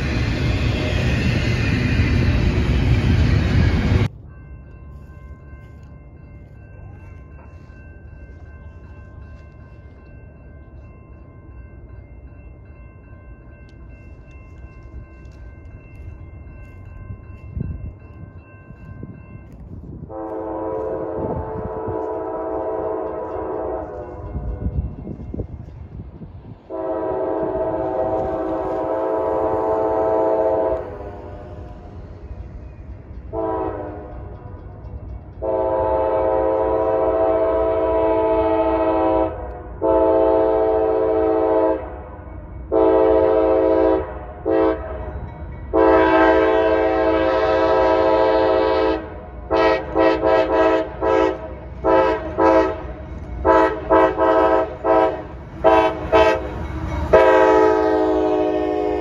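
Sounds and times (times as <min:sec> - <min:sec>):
diesel locomotive rumble: 0:00.0 - 0:04.3, 0:12.7 - 0:59.0
locomotive air horn blasts: 0:20.1 - 0:24.2, 0:26.7 - 0:31.6, 0:33.3 - 0:34.3, 0:35.4 - 0:42.0, 0:42.7 - 0:45.0, 0:45.7 - 0:59.0.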